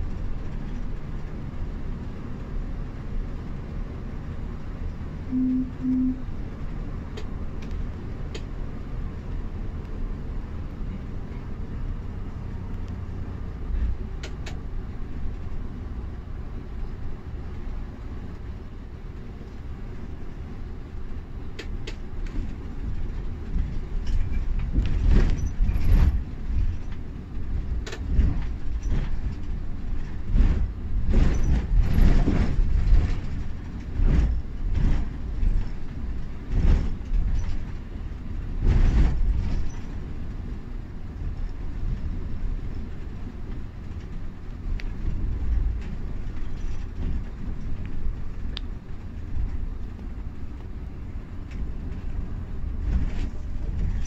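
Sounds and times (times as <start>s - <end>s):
engine and tyres rumbling: 0.0s - 54.0s
knocks and rattles: 21.6s - 40.1s.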